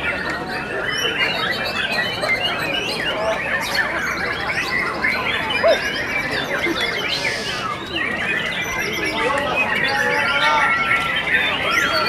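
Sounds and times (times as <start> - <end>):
birds singing in chorus: 0.0 - 12.0.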